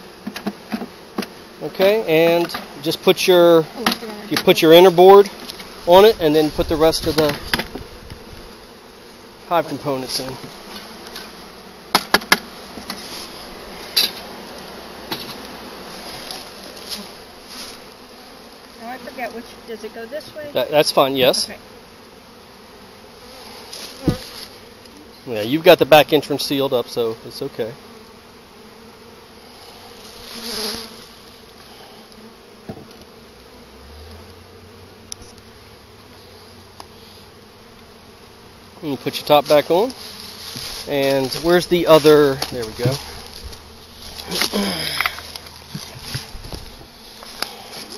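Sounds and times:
bees buzzing: 0.0 - 47.9
wooden hive knocks and clicks: 0.2 - 1.4, 2.3 - 2.8, 3.8 - 4.6, 6.6 - 8.3, 10.1 - 17.4, 23.7 - 24.9, 32.6 - 33.2, 39.1 - 47.9.

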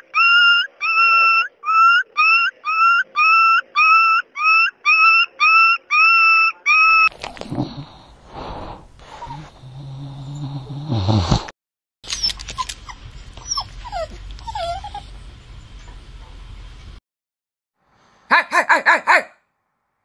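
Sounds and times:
dog yelping: 0.0 - 7.1, 12.1 - 15.1.

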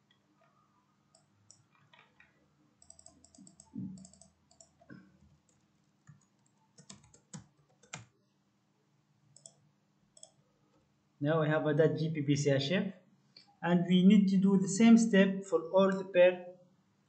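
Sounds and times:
keyboard typing: 2.8 - 8.1, 9.4 - 9.6, 10.2 - 10.4
mouse clicks: 9.4 - 9.6, 10.2 - 10.4.

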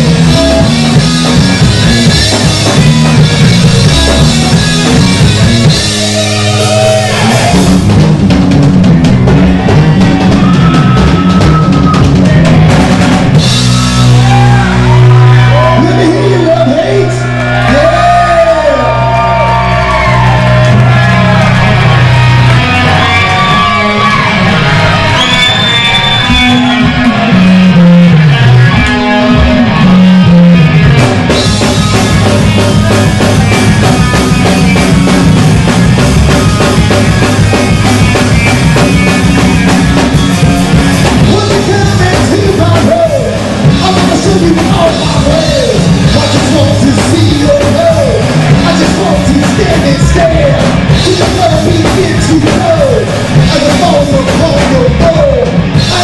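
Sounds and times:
drums and cymbals: 0.0 - 18.7, 19.7 - 29.7, 30.7 - 56.0
bass guitar: 0.0 - 56.0
metal band playing: 0.0 - 56.0
man singing: 41.2 - 56.0.

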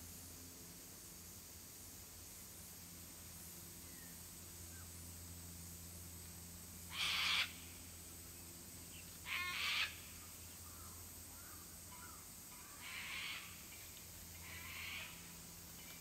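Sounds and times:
kookaburra calls: 6.9 - 7.6, 9.2 - 10.1, 11.9 - 13.7, 14.4 - 15.2.

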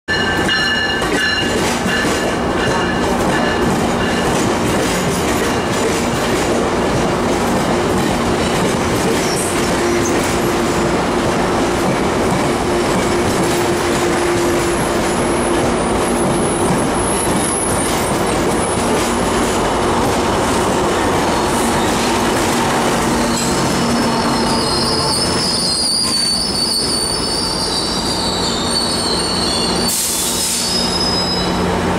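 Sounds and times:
locomotive engine drone: 1.6 - 31.9
high-pitched squeal: 21.2 - 31.7.

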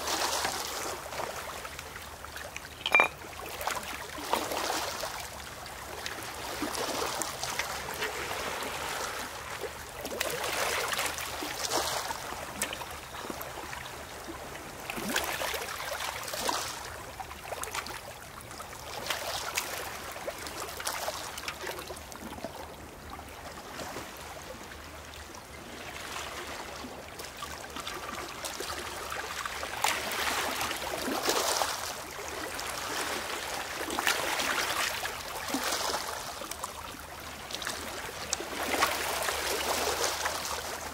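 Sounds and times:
small waves washing over pebbles: 27.6 - 40.9.

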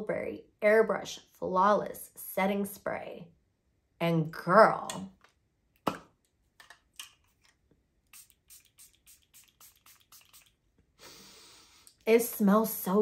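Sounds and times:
spray bottle spritzing: 8.1 - 10.6.

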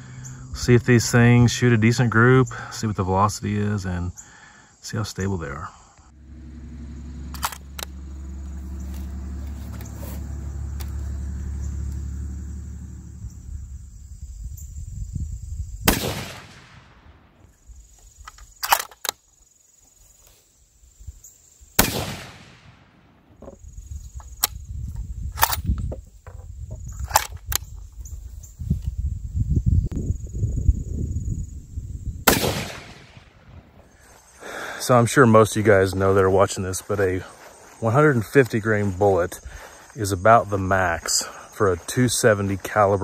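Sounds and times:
low rumble: 6.1 - 17.4
metallic clicks of rifle bolt: 7.4 - 7.9, 18.2 - 19.2, 25.4 - 25.8, 27.0 - 27.7
rifle shots echoing: 15.9 - 17.4, 21.8 - 23.3, 32.2 - 33.8.

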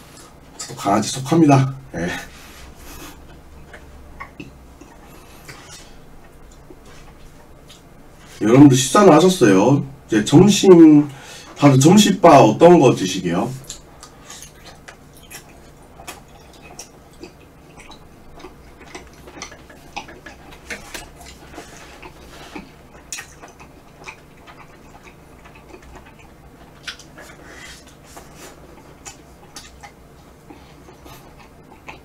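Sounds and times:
faint low hum: 0.0 - 32.0
wet mouth smacks eating: 13.6 - 32.0.

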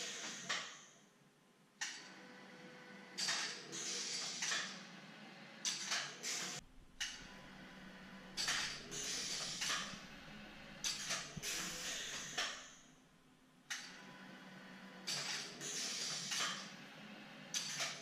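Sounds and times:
pneumatic air hisses: 0.0 - 0.9, 3.2 - 4.8, 6.2 - 6.6, 8.4 - 10.0, 10.8 - 12.8, 15.1 - 16.6
mechanical sliding sounds: 1.8 - 4.9, 5.6 - 12.9, 13.7 - 18.0
low hum: 6.6 - 13.6.

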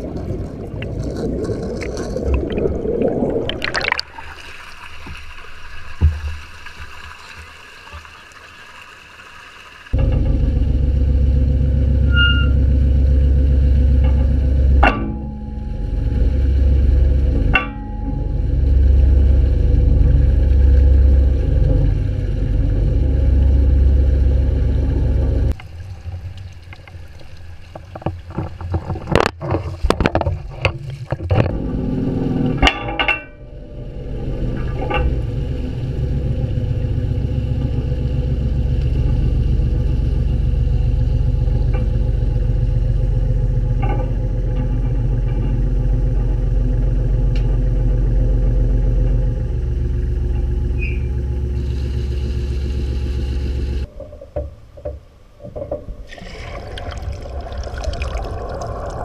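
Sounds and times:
crane engine rumbling: 10.0 - 28.4, 31.5 - 54.2, 55.8 - 59.0
metallic clanks and rattles: 13.9 - 18.6, 32.6 - 35.9, 41.5 - 51.6.

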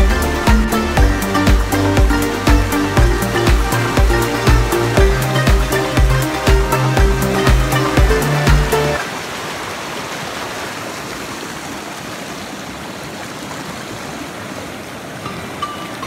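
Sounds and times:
music with heavy beat: 0.0 - 9.0
river rushing over rocks: 0.0 - 16.0.

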